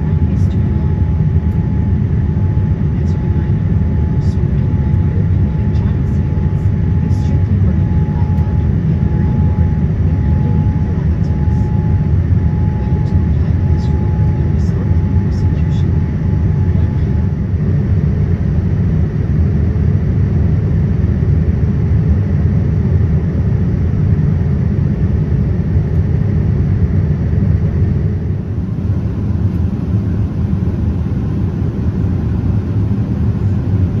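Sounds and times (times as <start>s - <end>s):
faint high whine: 0.0s - 18.5s
jet engine rumble in cabin: 0.0s - 34.0s.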